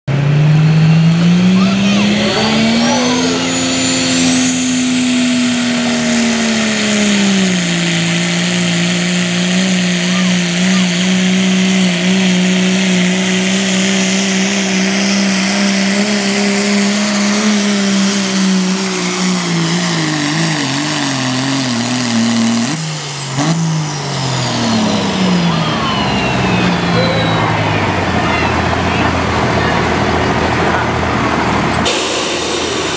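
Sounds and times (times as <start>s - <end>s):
diesel truck engine at full throttle: 0.0s - 32.9s
high whine: 0.7s - 20.0s.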